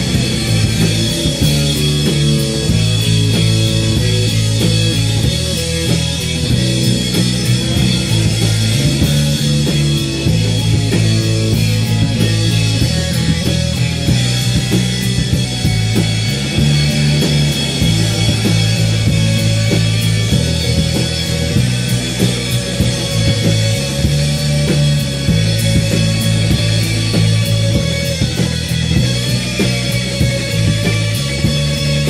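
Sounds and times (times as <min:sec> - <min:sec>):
live rock band playing: 0:00.0 - 0:32.0.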